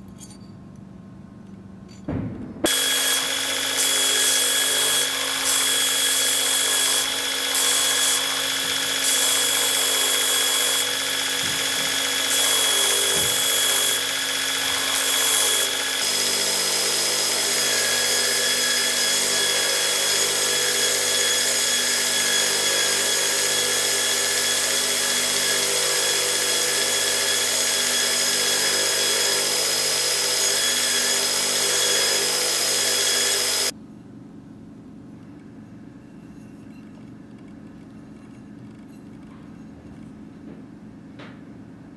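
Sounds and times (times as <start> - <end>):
belt grinder motor whine: 2.7 - 33.7
metal grinding on belt: 2.7 - 33.7.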